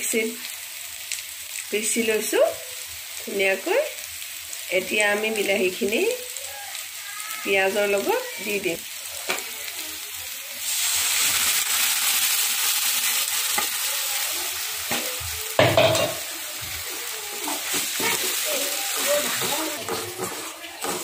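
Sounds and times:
puree sizzling in hot oil: 0.0s - 21.0s
metal knock on pan: 15.6s - 16.2s
metal spatula scraping pan: 17.3s - 21.0s.

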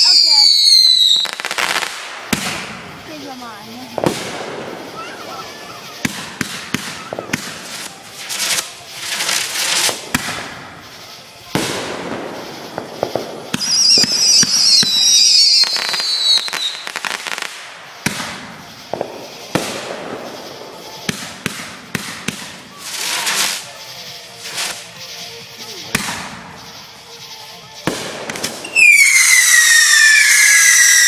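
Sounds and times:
high falling firework whistle: 0.0s - 1.9s, 13.6s - 17.5s, 28.2s - 31.0s
firework bangs and crackling: 0.0s - 31.0s
firework hissing: 0.0s - 31.0s.

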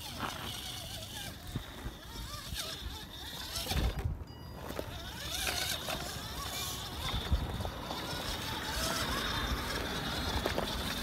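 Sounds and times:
electric rc car motor whining: 0.0s - 11.0s
wind rumbling on microphone: 1.1s - 4.3s, 6.6s - 11.0s.

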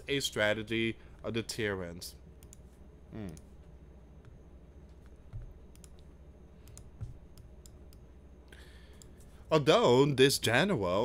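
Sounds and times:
light computer clicks: 4.9s - 8.0s.

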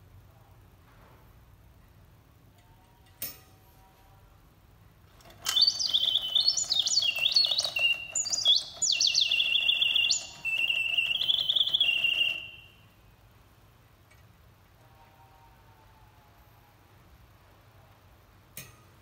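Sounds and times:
mechanical birdsong whistle trilling: 5.4s - 12.8s.

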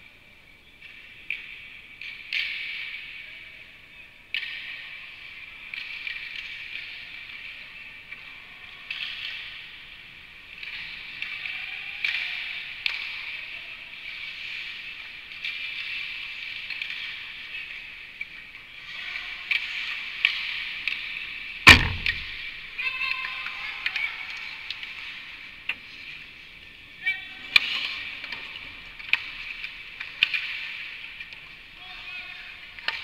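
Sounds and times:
clicks of sticks and puck: 0.8s - 3.2s, 4.3s - 8.2s, 8.8s - 13.4s, 14.0s - 18.7s, 19.4s - 22.6s, 27.5s - 31.7s, 32.6s - 33.0s
loud bang against rink boards: 21.7s - 22.6s.

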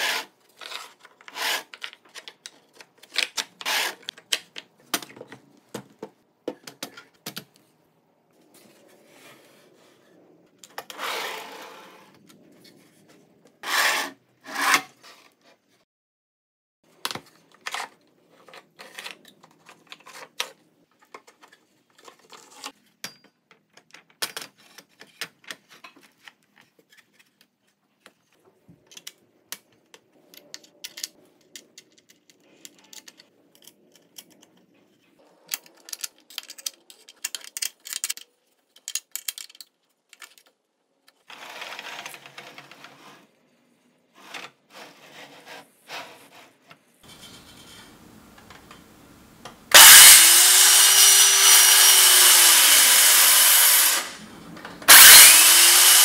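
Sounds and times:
clicks and knocks of parts handled: 0.5s - 7.7s, 17.0s - 41.2s.

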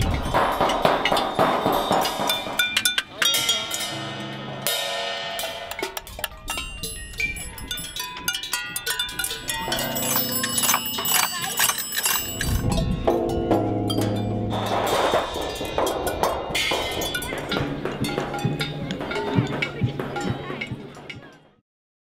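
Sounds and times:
mallets striking metal sculptures: 0.0s - 21.6s
low sustained metal ring: 6.5s - 19.3s.

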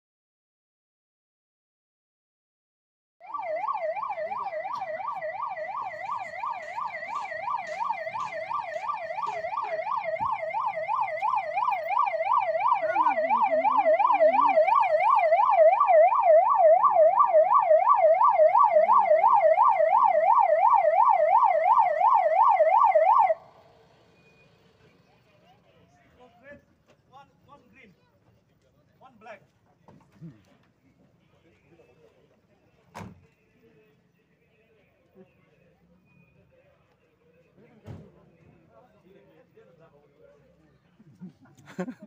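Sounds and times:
ambulance siren yelping: 3.2s - 23.6s.

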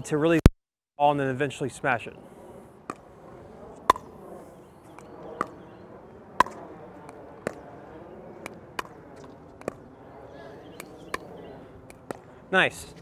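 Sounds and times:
pickleball hollow pocks: 3.8s - 4.1s, 4.9s - 5.7s, 6.4s - 7.7s, 8.4s - 9.9s, 10.7s - 12.4s.

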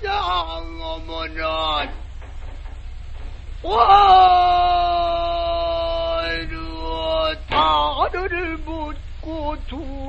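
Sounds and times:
steady low hum: 0.0s - 10.0s
man singing long note: 3.6s - 10.0s.

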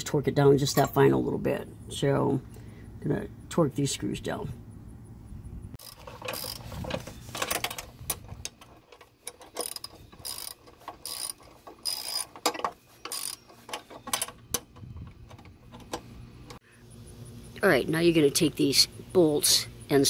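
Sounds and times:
socket ratchet clicking: 7.4s - 14.8s.

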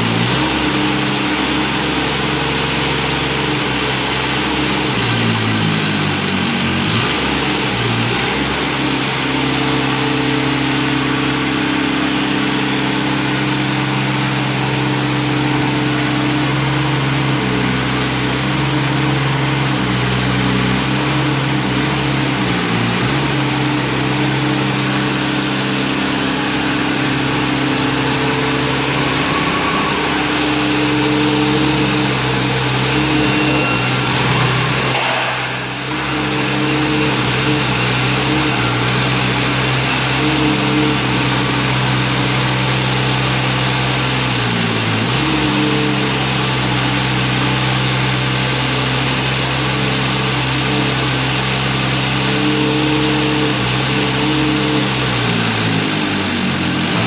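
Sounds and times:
machine engine running: 0.0s - 57.0s.

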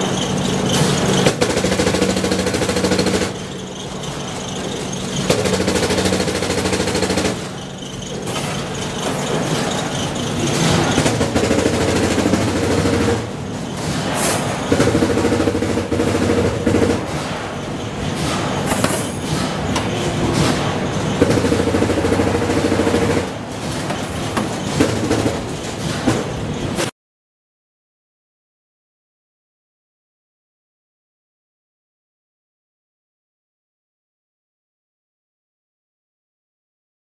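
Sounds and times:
machinery humming drone: 0.0s - 26.8s.

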